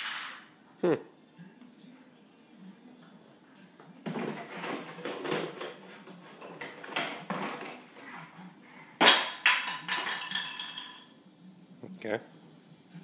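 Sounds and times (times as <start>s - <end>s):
plastic toys clattering on wooden floor: 0.0s - 0.4s, 4.1s - 7.8s, 9.0s - 11.1s.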